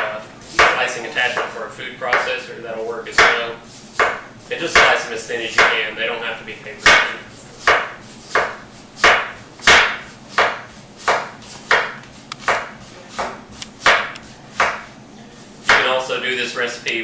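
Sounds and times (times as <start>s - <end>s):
knife slicing potatoes: 6.8s - 14.9s, 15.6s - 16.0s.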